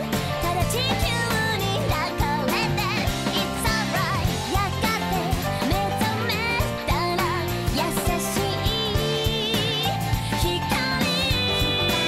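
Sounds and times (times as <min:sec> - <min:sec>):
pop band with drum beat: 0:00.0 - 0:12.0
woman singing with vibrato: 0:03.4 - 0:12.0.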